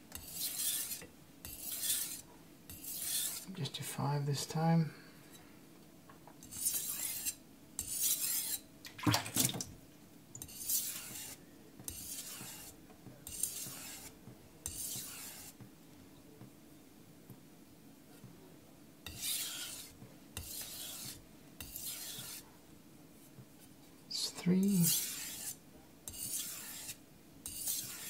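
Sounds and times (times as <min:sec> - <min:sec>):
knife scraping on whetstone: 0:00.1 - 0:03.5, 0:06.4 - 0:08.6, 0:10.4 - 0:15.6, 0:19.0 - 0:22.5, 0:24.6 - 0:28.0.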